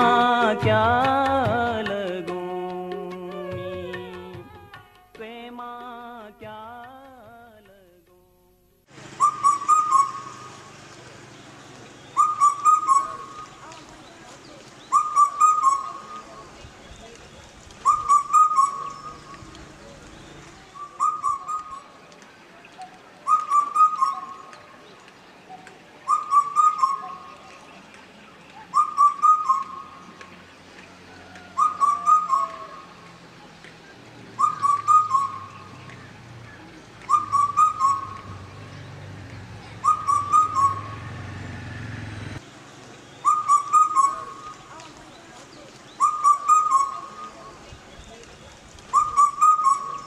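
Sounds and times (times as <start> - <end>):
whistled bird-like call: 9.2 - 10.6, 12.0 - 13.9, 14.8 - 16.3, 17.8 - 19.5, 20.2 - 22.0, 22.7 - 24.6, 25.5 - 27.5, 28.5 - 30.2, 31.3 - 33.0, 34.4 - 38.4, 39.8 - 41.1, 43.1 - 44.9, 45.9 - 48.2, 48.9 - 50.0.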